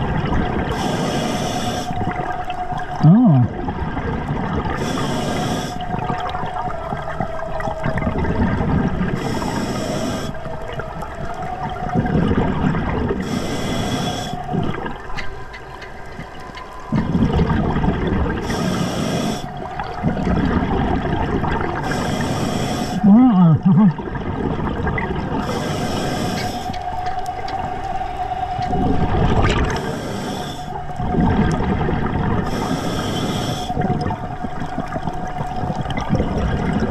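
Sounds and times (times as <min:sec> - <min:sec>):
exhaled bubbles rushing: 0:00.0 - 0:13.4, 0:14.1 - 0:22.2, 0:22.8 - 0:36.9
diver inhaling through regulator: 0:00.7 - 0:02.0, 0:04.8 - 0:05.9, 0:09.1 - 0:10.4, 0:13.2 - 0:14.8, 0:18.4 - 0:20.2, 0:21.8 - 0:23.6, 0:25.4 - 0:26.9, 0:29.7 - 0:30.8, 0:32.4 - 0:33.9.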